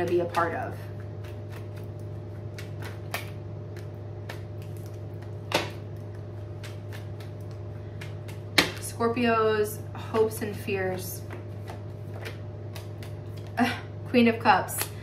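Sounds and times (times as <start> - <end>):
steady low hum: 0.0 - 15.0
cards shuffling: 11.2 - 13.6.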